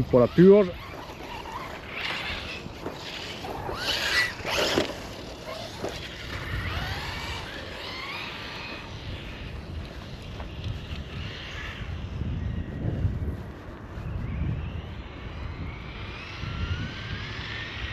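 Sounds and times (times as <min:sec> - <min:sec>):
electric motor whining: 0:00.0 - 0:13.4.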